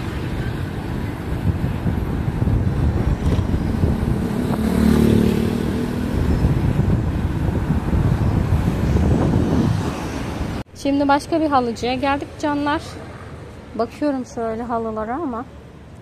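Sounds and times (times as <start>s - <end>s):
wind rushing over microphone: 0.0s - 10.7s
motorcycle passing by: 2.4s - 10.6s.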